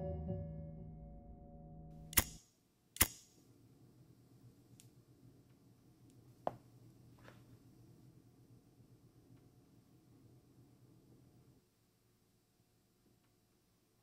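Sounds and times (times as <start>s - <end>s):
music tones: 0.0s - 2.2s.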